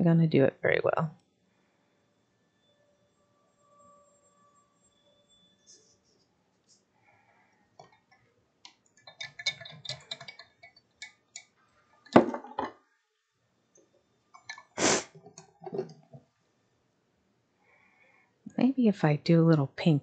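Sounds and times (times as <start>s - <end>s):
painting supplies clicking and clinking: 8.7s - 12.8s, 14.4s - 16.3s.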